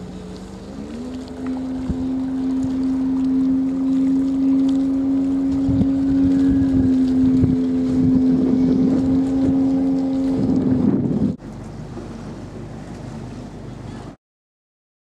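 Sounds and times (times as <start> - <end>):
motorboat engine running: 0.0 - 14.2
wind on microphone: 0.8 - 11.4.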